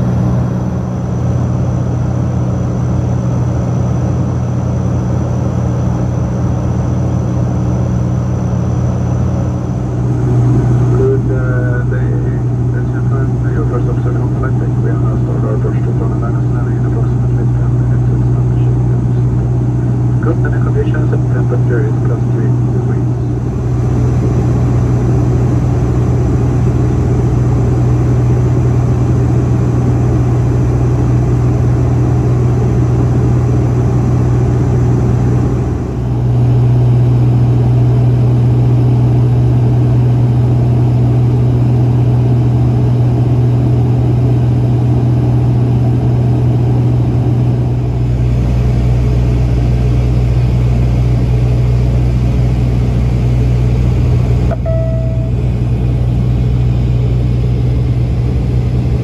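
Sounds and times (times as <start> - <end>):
turboprop cabin drone: 0.0 - 59.0.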